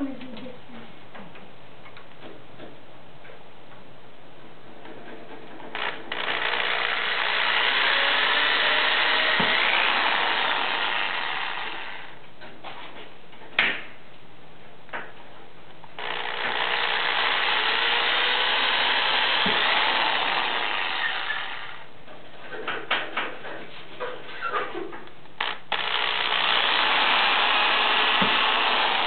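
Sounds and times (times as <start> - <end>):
electric drill boring: 5.7 - 12.2, 16.0 - 21.9, 25.4 - 29.0.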